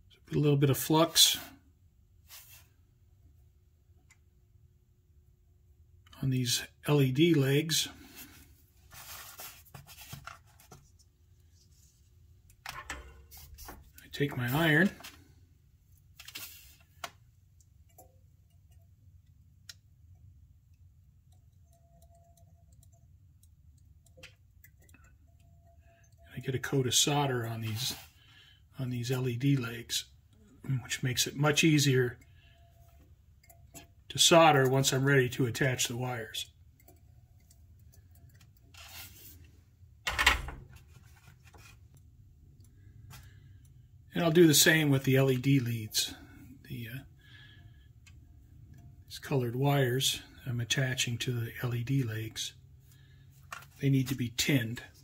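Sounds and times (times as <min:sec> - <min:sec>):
soft rustle: 0:08.1 - 0:12.2, 0:16.2 - 0:17.0, 0:38.7 - 0:39.6.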